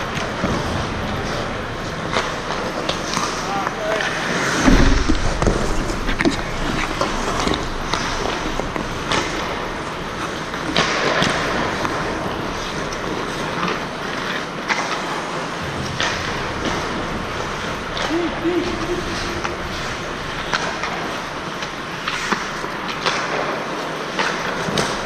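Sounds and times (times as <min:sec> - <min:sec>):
skate blades scraping ice: 0:00.0 - 0:04.8, 0:05.4 - 0:25.0
hockey sticks clacking: 0:00.0 - 0:25.0
low rumble: 0:04.4 - 0:10.1.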